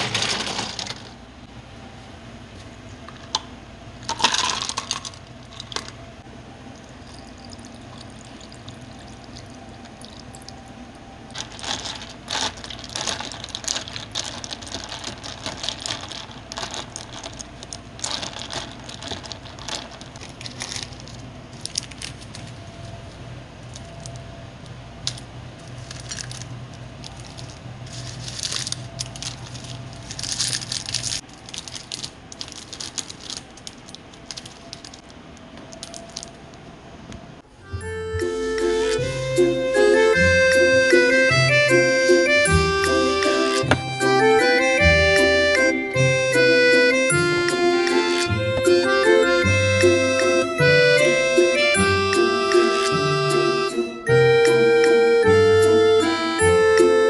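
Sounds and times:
ice cubes clattering into cup: 0.0 - 1.1, 4.1 - 5.9
low steady hum: 0.0 - 57.0.

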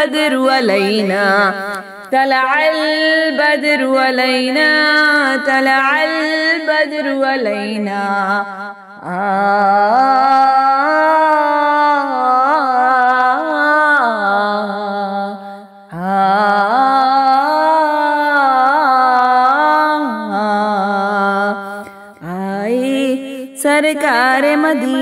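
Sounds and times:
person singing wordless notes: 15.9 - 25.0.

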